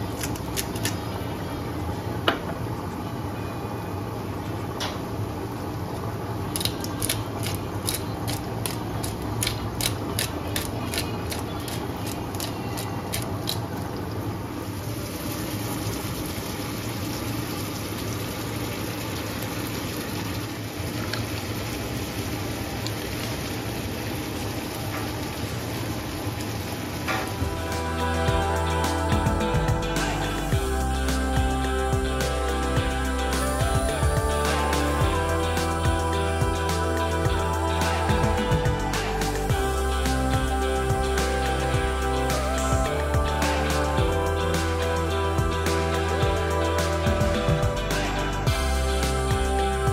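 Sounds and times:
food sizzling: 0:05.0 - 0:49.9
low hum: 0:27.1 - 0:49.9
music: 0:27.3 - 0:49.9.

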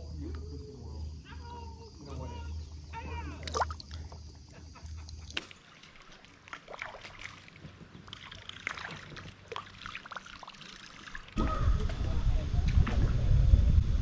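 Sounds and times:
water splashing and dripping: 0:03.3 - 0:04.2, 0:04.9 - 0:11.4
paddle dipping in water: 0:05.2 - 0:11.4
wind rumble on microphone: 0:11.4 - 0:14.0.

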